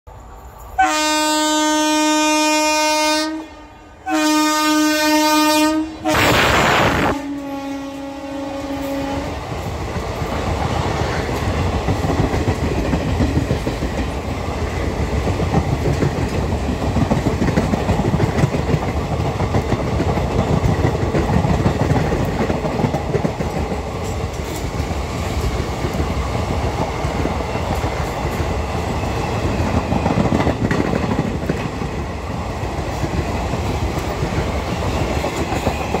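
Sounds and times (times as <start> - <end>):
locomotive horn: 0.8 - 9.4
train wheels rumbling: 1.9 - 36.0.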